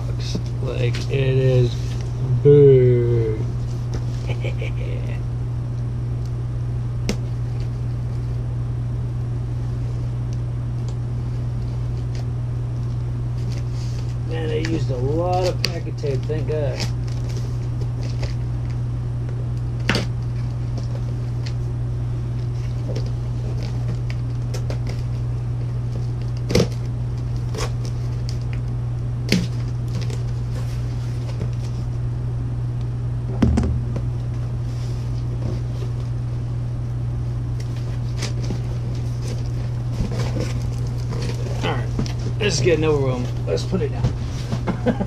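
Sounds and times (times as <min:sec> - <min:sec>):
steady low hum: 0:00.0 - 0:45.0
dull thump: 0:33.3 - 0:34.1.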